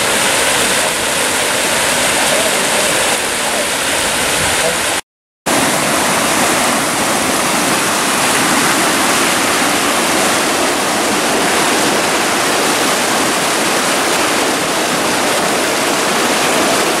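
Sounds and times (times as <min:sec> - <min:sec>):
floodwater rushing down creek: 0:00.0 - 0:17.0.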